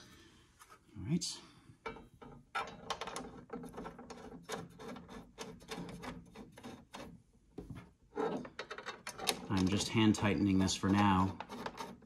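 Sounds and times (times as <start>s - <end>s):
small metal clicks and scrapes: 2.2s - 7.2s, 8.2s - 12.0s.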